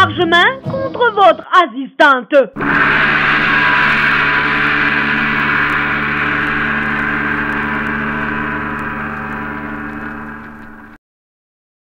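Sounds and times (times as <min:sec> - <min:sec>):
gong ringing: 0:02.6 - 0:11.0.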